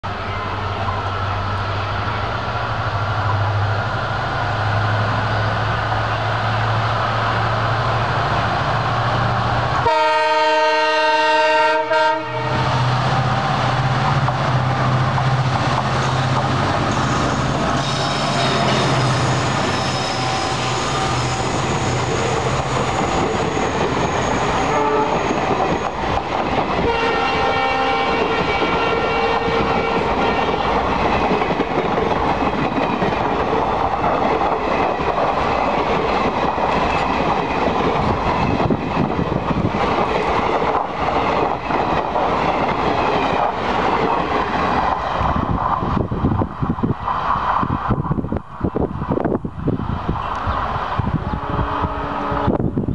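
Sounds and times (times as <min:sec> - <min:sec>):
train coaches rumbling: 0:00.0 - 0:52.9
train air horn blasts: 0:09.8 - 0:12.8, 0:24.6 - 0:25.4, 0:26.8 - 0:30.8, 0:51.2 - 0:52.6
wheels clacking over rail joints: 0:13.1 - 0:45.2.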